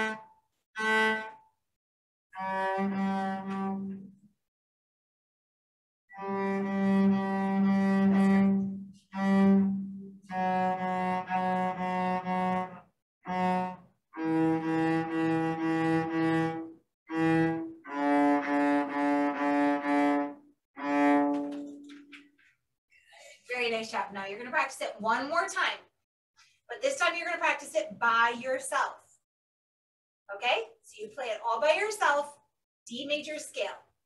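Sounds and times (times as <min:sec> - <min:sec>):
cello playing short bow strokes: 0:06.1 - 0:21.9.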